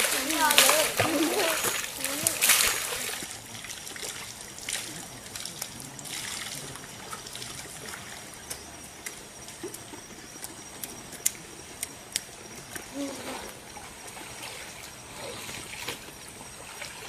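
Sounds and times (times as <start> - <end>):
short sharp splashes: 0.0 - 8.2
water trickling over rock: 0.0 - 17.0.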